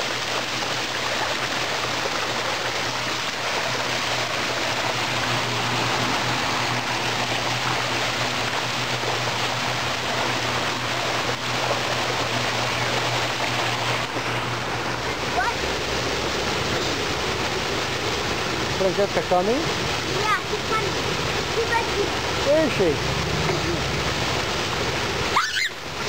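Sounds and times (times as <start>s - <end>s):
low steady hum: 0.0s - 20.2s
water rushing down a slide: 0.0s - 26.0s.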